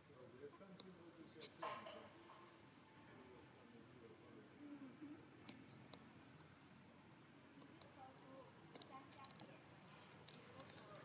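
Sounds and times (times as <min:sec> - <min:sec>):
faint background hum: 0:00.0 - 0:11.0.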